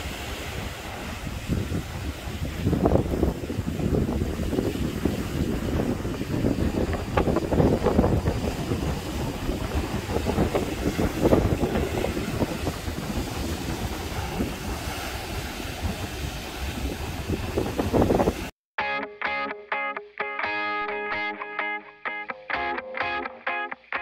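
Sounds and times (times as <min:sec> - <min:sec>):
waves breaking against rocks: 0:00.0 - 0:18.5
wind rumble on microphone: 0:00.0 - 0:18.5.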